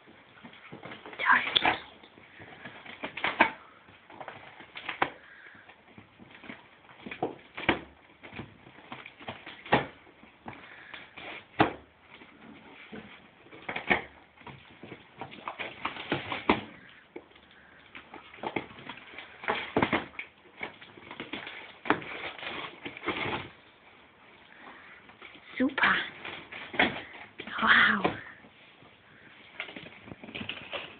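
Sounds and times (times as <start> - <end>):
dog tearing cardboard: 0.5 - 23.8.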